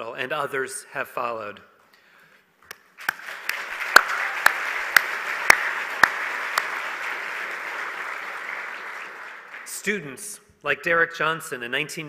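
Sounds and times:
close sharp hand clapping: 2.7 - 9.7
audience applause: 3.0 - 9.8.

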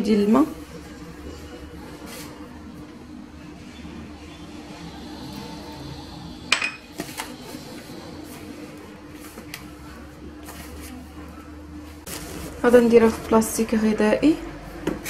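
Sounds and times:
hands working pastry dough: 0.0 - 3.7, 6.8 - 13.8
glass bowl clinking on countertop: 6.5 - 6.9.

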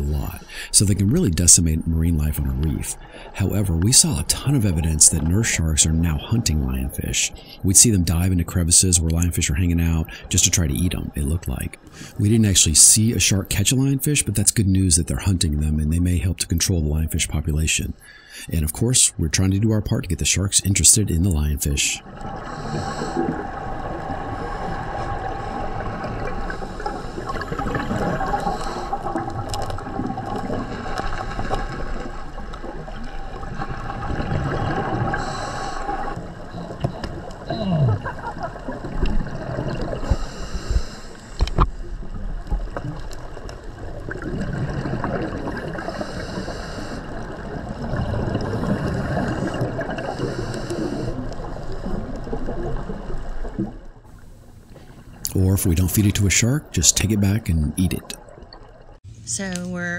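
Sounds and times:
muffled underwater noise: 0.0 - 29.0, 54.6 - 58.2
gurgling bubbles: 22.0 - 40.6, 42.1 - 53.8.

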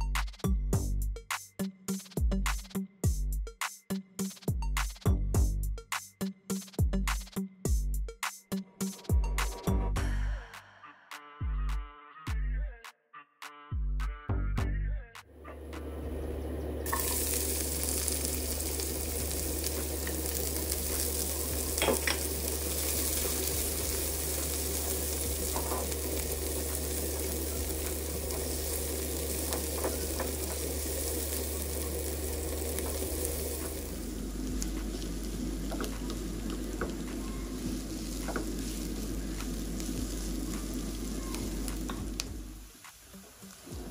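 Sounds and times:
food sizzling in oil: 16.2 - 43.9
utensil tapping pan: 29.4 - 30.7, 35.6 - 37.3, 38.1 - 39.6.

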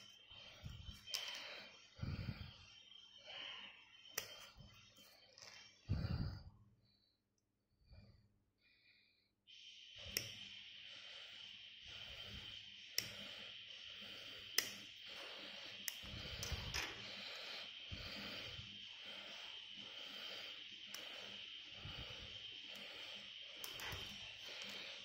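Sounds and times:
steady hiss: 9.6 - 25.0.

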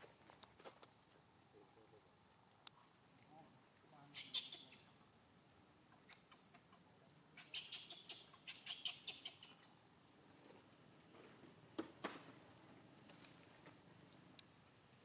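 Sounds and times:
baby monkey squeaking cries: 4.2 - 4.8, 7.4 - 9.6.

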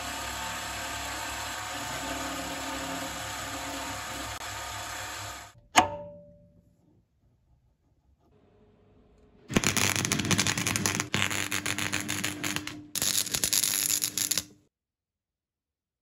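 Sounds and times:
welder hum: 0.0 - 5.6, 9.5 - 14.6
arc welding crackle: 9.5 - 14.6.

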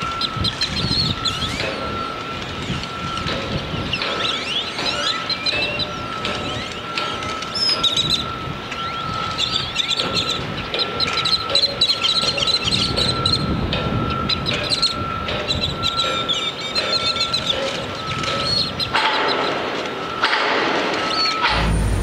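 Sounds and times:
high-pitched whine: 0.0 - 22.0
birds chirping: 2.6 - 13.5, 14.2 - 19.6
low background rumble: 21.5 - 22.0.

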